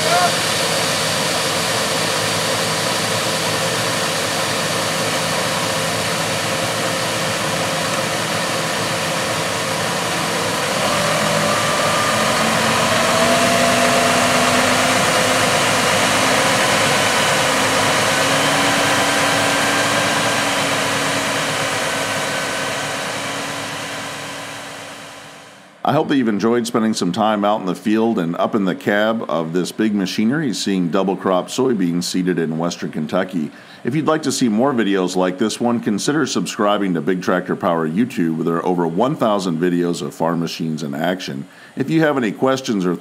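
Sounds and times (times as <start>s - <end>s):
conveyor augering seed: 0.0s - 25.4s
truck machinery drone: 0.0s - 43.0s.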